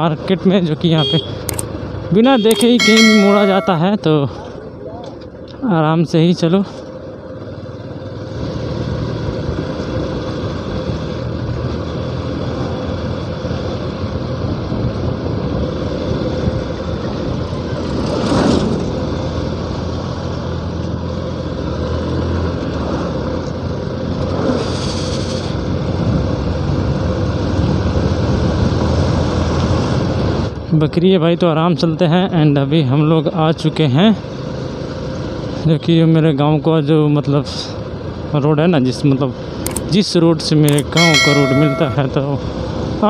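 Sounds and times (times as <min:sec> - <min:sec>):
wind and road noise: 0:00.0 - 0:02.7, 0:06.9 - 0:31.5, 0:34.2 - 0:35.7, 0:37.7 - 0:40.9
rush of passing bus: 0:07.4 - 0:30.6.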